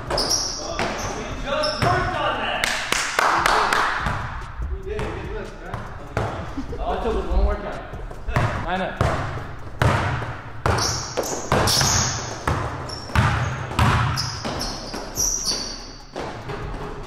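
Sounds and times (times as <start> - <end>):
sneakers squeaking on floor: 0.0 - 2.2, 8.0 - 17.0
basketball bouncing on hardwood: 8.3 - 15.0.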